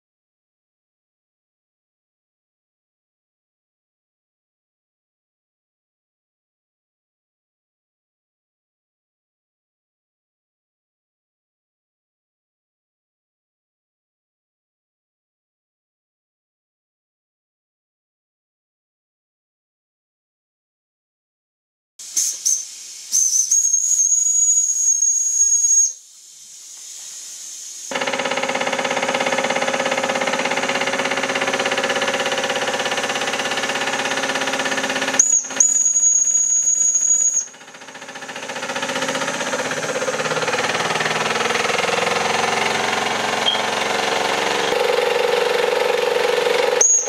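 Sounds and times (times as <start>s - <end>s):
steam hissing: 22.0s - 28.0s
steam engine whistle: 22.2s - 26.0s, 35.1s - 37.6s, 46.6s - 47.0s.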